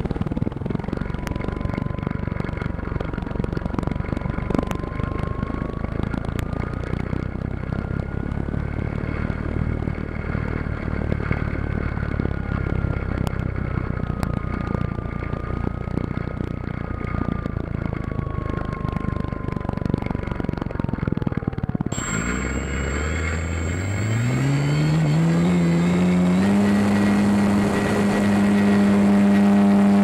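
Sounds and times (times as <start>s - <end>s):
wind rush on microphone: 0.0s - 22.1s
model plane motor whine: 21.9s - 30.0s.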